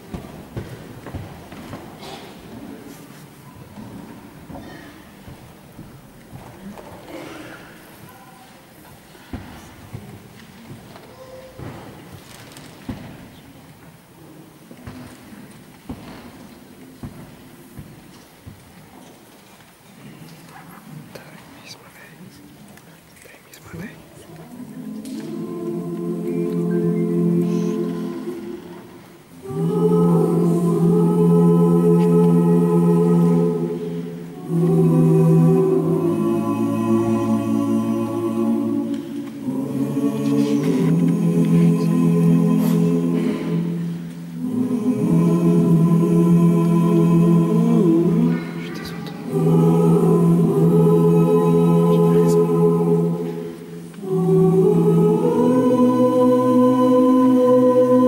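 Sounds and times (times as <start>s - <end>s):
choir singing held chords: 24.3s - 58.0s.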